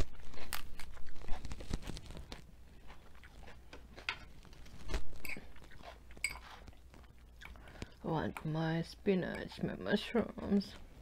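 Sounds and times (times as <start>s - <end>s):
fork in glass bowl: 6.2s - 6.5s.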